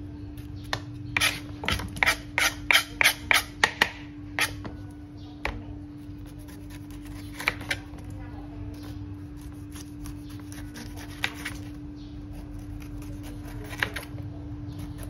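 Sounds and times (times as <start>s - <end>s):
steady low hum: 0.0s - 15.0s
knife scraping cutting board: 1.1s - 3.7s, 4.4s - 4.7s, 9.4s - 11.7s, 12.4s - 14.1s.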